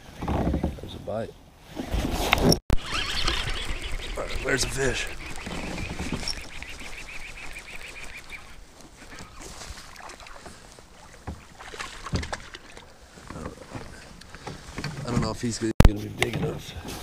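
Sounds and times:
fishing reel whirring: 2.8s - 8.5s
fish splashing: 2.8s - 13.2s.

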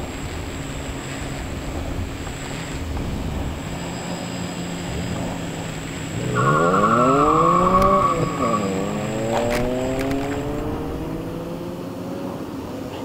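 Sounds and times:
car engine revving: 3.0s - 12.8s
tires squealing: 3.6s - 11.4s.

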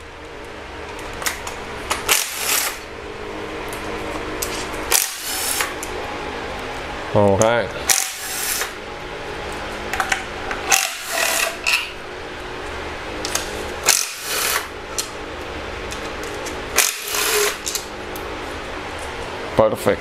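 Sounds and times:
cordless power tool spinning bolts: 2.0s - 2.8s, 4.9s - 5.7s, 7.9s - 8.7s, 10.7s - 11.6s, 13.8s - 14.7s, 16.8s - 17.8s.

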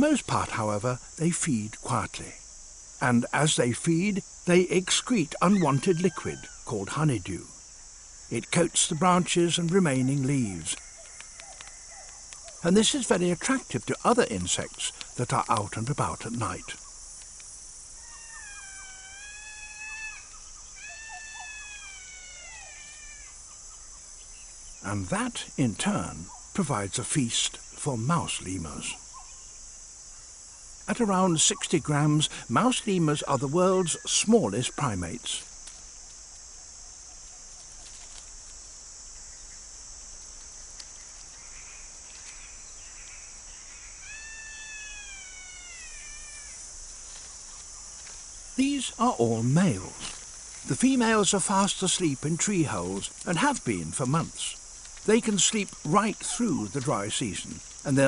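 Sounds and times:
night insects hissing: 0.0s - 58.0s
long whistled animal calls: 18.0s - 23.7s, 44.0s - 46.6s.

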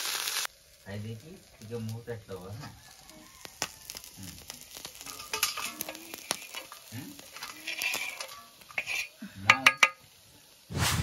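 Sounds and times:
fish sizzling in oil: 0.0s - 11.0s
metal ladle scraping a pan: 4.5s - 10.0s.

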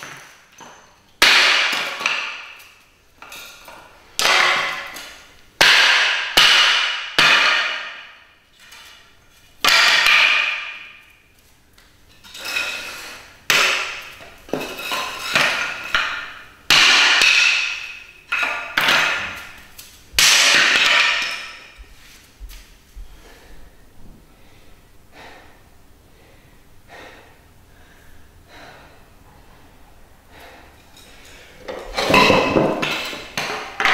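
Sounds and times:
hatchet chopping wood: 1.2s - 2.5s, 5.6s - 8.0s, 9.6s - 10.8s, 13.5s - 14.2s, 16.7s - 17.8s.

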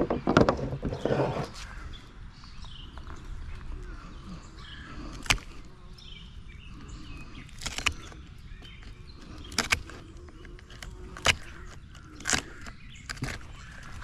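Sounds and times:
faint birds chirping: 0.0s - 14.0s
pliers cracking bone: 5.1s - 5.6s, 7.5s - 8.2s, 8.8s - 14.0s.

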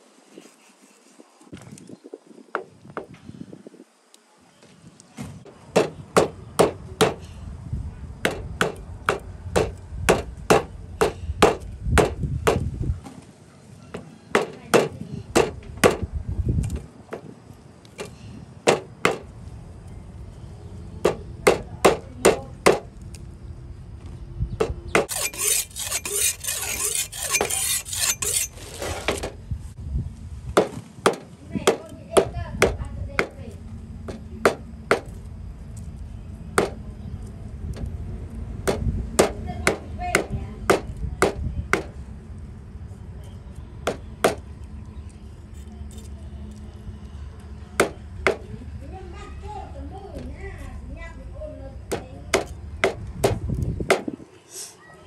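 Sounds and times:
rasping hiss: 25.1s - 29.2s.

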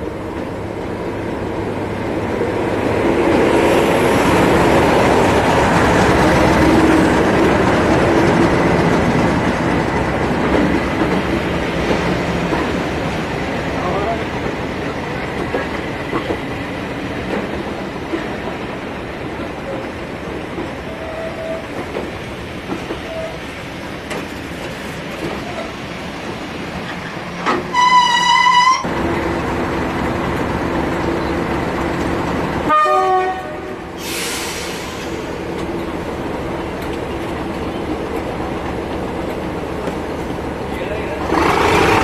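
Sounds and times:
railway coaches rolling on rails: 0.0s - 42.0s
locomotive horn: 27.7s - 28.9s, 32.7s - 33.9s
air hiss: 33.9s - 35.4s.

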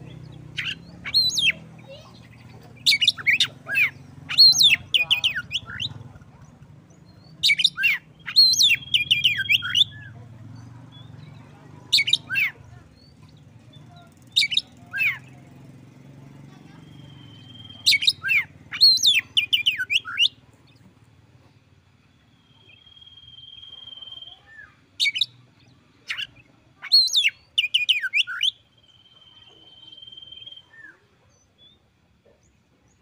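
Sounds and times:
bird whistling song: 0.0s - 6.0s, 7.0s - 10.2s, 11.9s - 12.6s, 14.3s - 15.3s, 16.8s - 20.4s, 22.3s - 25.4s, 26.1s - 31.8s.

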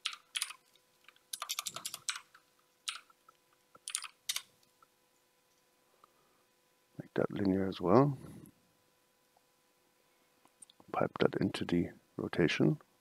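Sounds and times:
keyboard typing: 0.0s - 4.6s.

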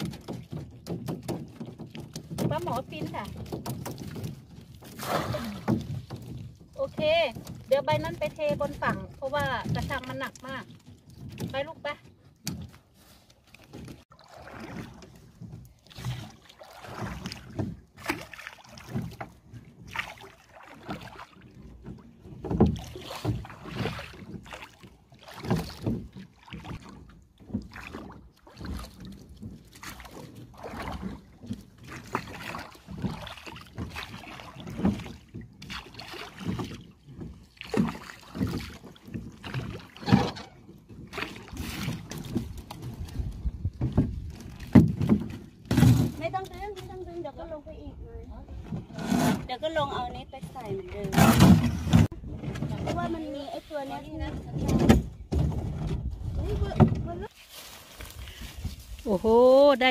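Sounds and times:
oars knocking wood and metal: 0.0s - 12.9s, 21.6s - 47.3s, 48.6s - 53.4s
oars splashing water: 0.0s - 59.9s.

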